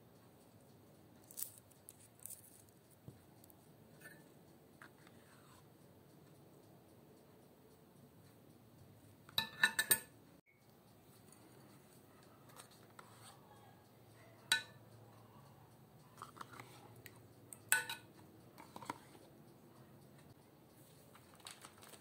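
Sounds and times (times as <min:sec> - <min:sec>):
faint scraping and handling ticks: 0:01.2 - 0:05.8, 0:11.0 - 0:13.9, 0:15.4 - 0:17.3, 0:18.6 - 0:19.4
metal spoon clinking on glass dish: 0:09.4 - 0:10.1, 0:14.5 - 0:14.8, 0:17.6 - 0:18.1.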